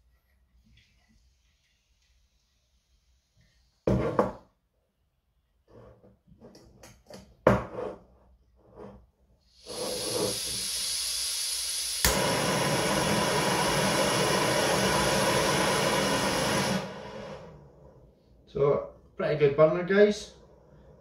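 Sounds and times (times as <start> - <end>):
gas hissing from valve: 9.4 - 17.6
gas burner rushing: 9.5 - 18.2.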